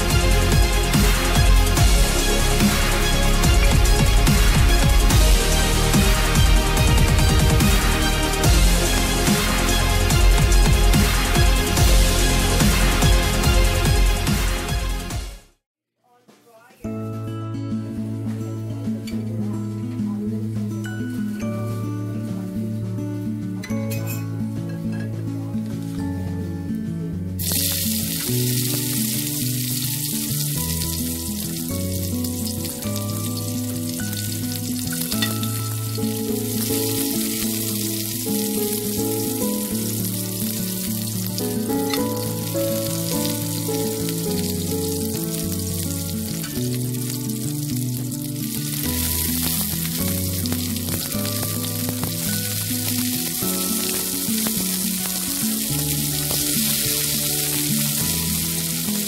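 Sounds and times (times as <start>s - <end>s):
background music with melody: 0.0s - 15.6s, 16.8s - 59.0s
food sizzling in oil: 27.4s - 59.0s.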